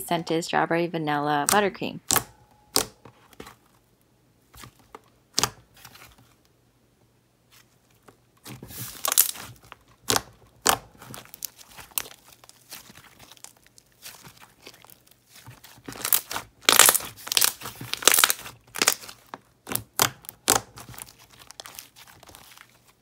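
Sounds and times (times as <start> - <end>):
slime sticky clicks and pops: 10.0 - 10.8, 19.7 - 20.7.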